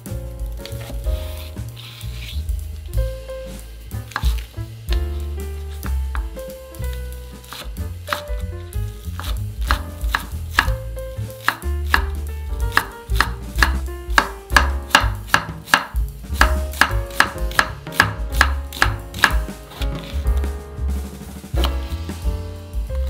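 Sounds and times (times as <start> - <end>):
knife chopping on wooden board: 4.0 - 5.1, 7.5 - 8.4, 9.1 - 20.5.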